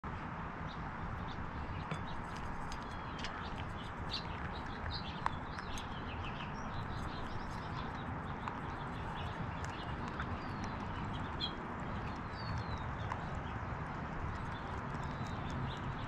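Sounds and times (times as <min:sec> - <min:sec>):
low background noise: 0:00.1 - 0:16.0
small birds chirping: 0:00.6 - 0:16.0
squirrel feeding clicks: 0:01.2 - 0:16.0.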